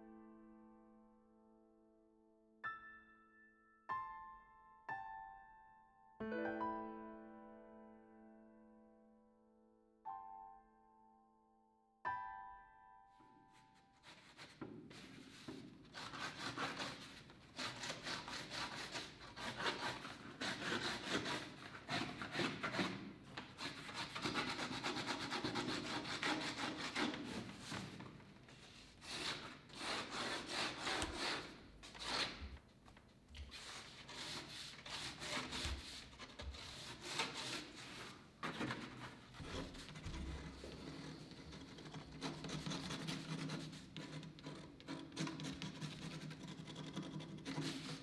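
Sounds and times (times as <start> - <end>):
pen nib scratching on paper: 39.4 - 48.0.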